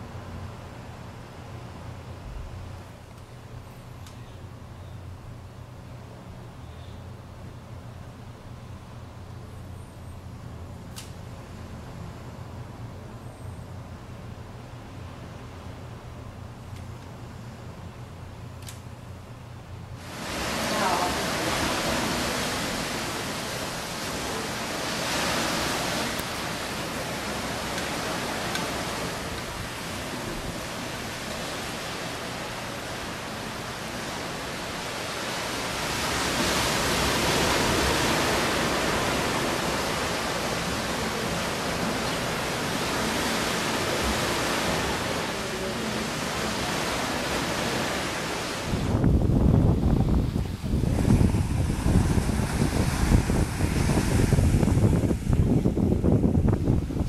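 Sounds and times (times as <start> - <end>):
ocean surf: 0.0 - 3.5, 19.8 - 57.0
wind: 0.0 - 57.0
waves breaking on beach: 20.0 - 57.0
wind buffeting microphone: 46.4 - 57.0.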